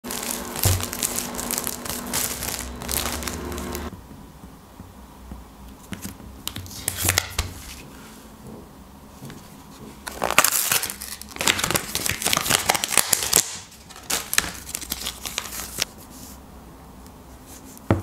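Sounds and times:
plastic packaging crinkling: 0.0s - 3.9s, 10.0s - 15.9s.

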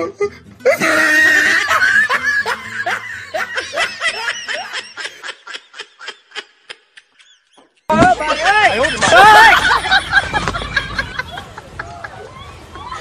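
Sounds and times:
person laughing high-pitched: 0.0s - 7.5s.

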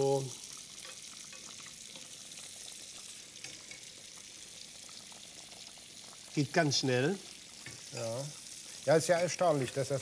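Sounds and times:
meat sizzling in a pan: 0.0s - 10.0s.

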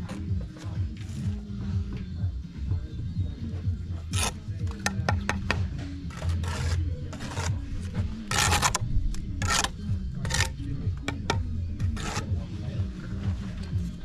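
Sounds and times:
trowel scraping mortar: 4.0s - 12.4s
trowel blade clicking on bricks: 8.3s - 8.8s, 9.4s - 12.3s.

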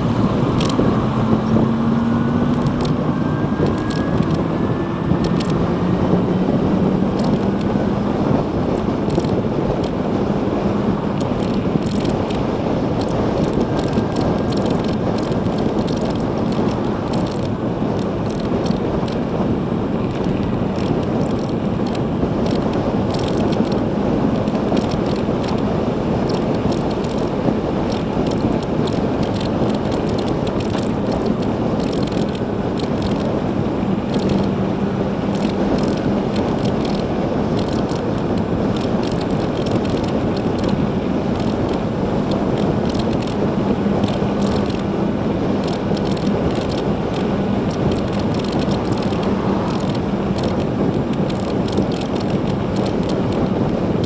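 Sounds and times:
wind and tyre noise: 0.0s - 54.0s
small rattles and ticks: 0.6s - 0.9s, 2.5s - 3.0s, 3.6s - 4.4s, 5.2s - 5.6s, 7.2s - 7.7s, 8.6s - 10.0s, 11.2s - 12.4s, 13.0s - 19.2s, 20.1s - 25.6s, 26.3s - 27.3s, 27.9s - 33.3s, 34.1s - 34.6s, 35.3s - 43.4s, 44.0s - 44.9s, 45.6s - 53.7s.

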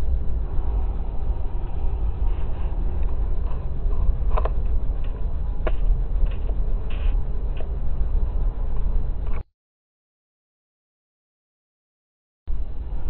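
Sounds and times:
freight train rumbling on rails: 0.0s - 9.4s, 12.5s - 13.0s.

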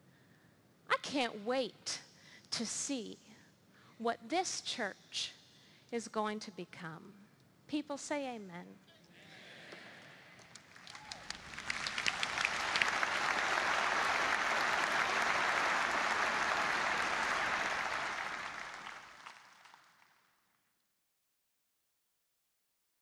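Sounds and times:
audience applauding: 10.4s - 20.2s.

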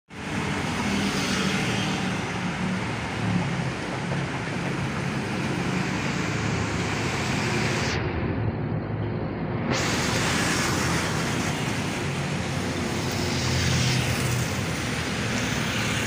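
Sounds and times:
street traffic noise: 0.1s - 16.0s.

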